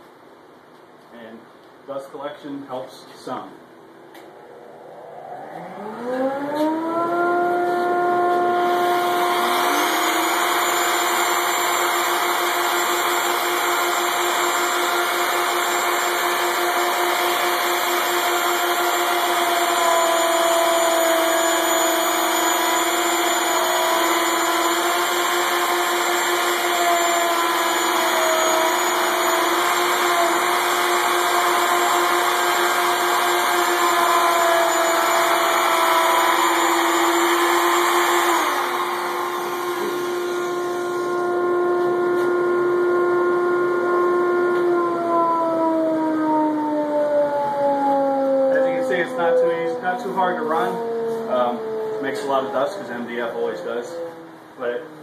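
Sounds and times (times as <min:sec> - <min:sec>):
router whining while cutting: 0:04.3 - 0:45.7.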